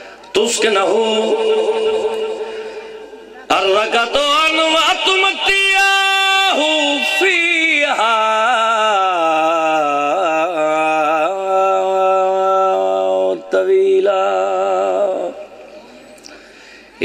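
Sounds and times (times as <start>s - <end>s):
man chanting into a microphone: 0.2s - 15.9s.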